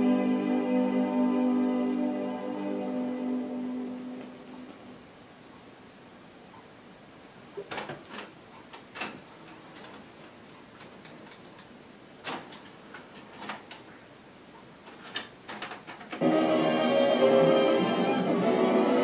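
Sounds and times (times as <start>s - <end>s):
faint tape hiss: 0.0s - 19.0s
tape transport clicking and clunking: 7.6s - 13.9s, 14.8s - 16.3s.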